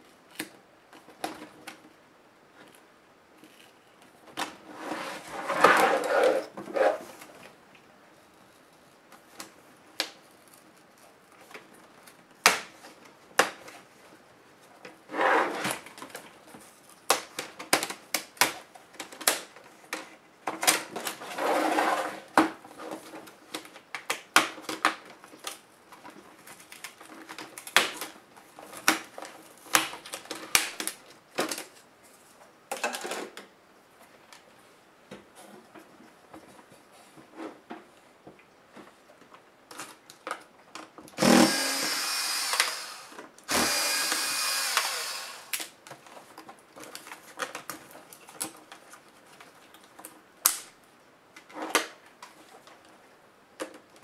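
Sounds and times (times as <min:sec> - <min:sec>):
plastic scraping: 0:04.6 - 0:07.3.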